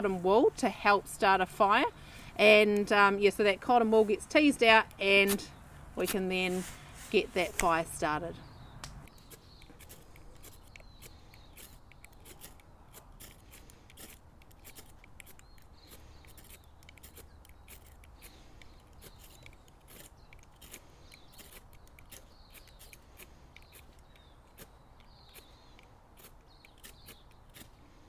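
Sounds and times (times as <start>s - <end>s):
ferro rods scraped with strikers: 9.1s - 28.0s.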